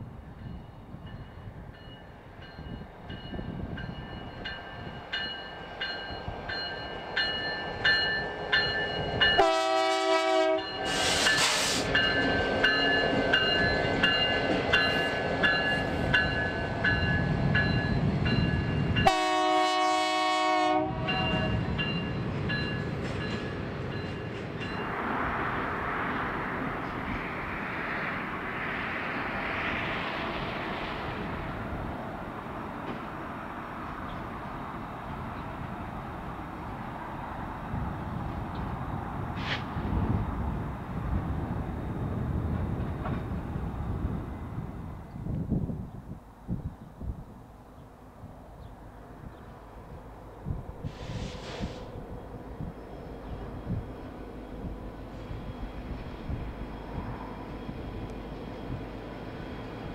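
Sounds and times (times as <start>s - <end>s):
train rumbling on rails: 0.0s - 59.9s
locomotive bell ringing: 0.4s - 9.7s, 12.0s - 19.2s, 21.0s - 24.9s
train horn blasts: 9.4s - 11.8s, 19.0s - 21.6s
train hiss: 10.8s - 12.3s, 39.3s - 40.1s, 50.8s - 52.2s.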